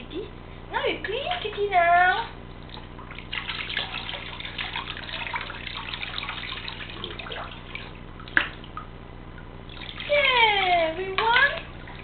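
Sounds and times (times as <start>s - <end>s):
water splashing into basin: 2.5s - 10.4s.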